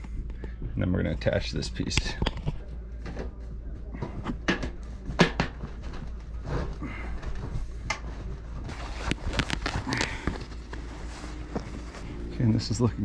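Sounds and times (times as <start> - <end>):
canvas rustling: 5.8 - 12.7.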